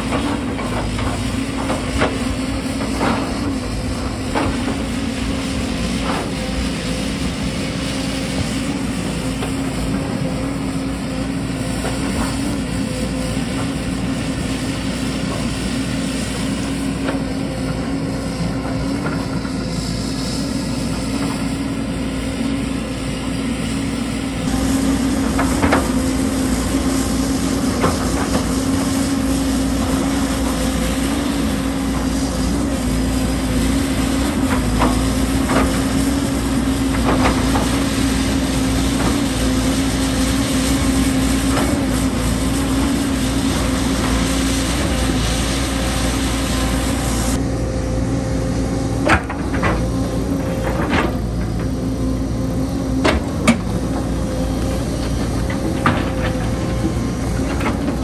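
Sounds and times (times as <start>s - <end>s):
excavator diesel engine running: 0.0s - 58.0s.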